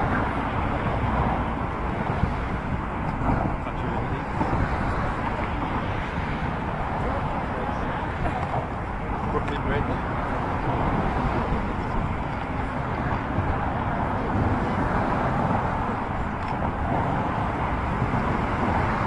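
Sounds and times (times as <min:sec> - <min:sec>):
road traffic noise: 0:00.0 - 0:19.0.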